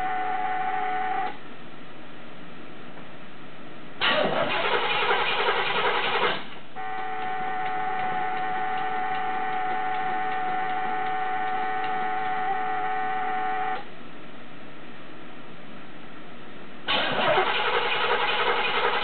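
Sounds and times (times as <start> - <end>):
car engine: 4.0 - 13.9, 16.9 - 19.0
steady buzzer tone: 6.8 - 13.8.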